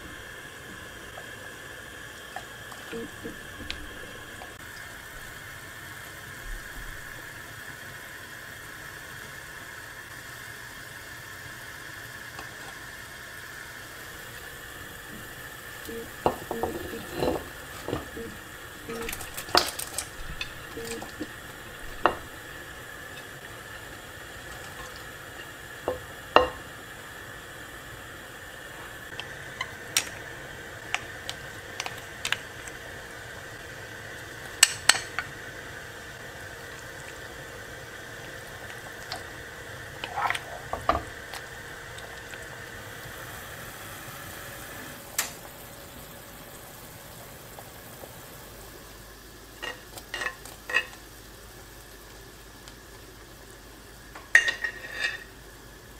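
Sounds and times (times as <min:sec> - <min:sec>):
soup simmering with a hiss: 0:00.0 - 0:55.9
plate and spoon clinking on pot: 0:16.3 - 0:18.3, 0:54.4 - 0:55.3.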